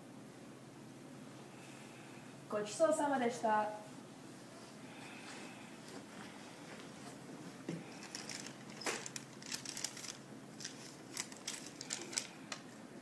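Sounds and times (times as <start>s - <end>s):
paper rustling and crinkling: 7.8s - 12.8s.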